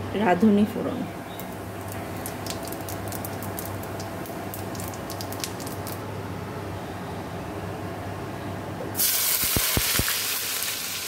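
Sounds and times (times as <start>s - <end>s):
seeds crackling in hot oil: 1.3s - 6.0s, 9.0s - 11.0s.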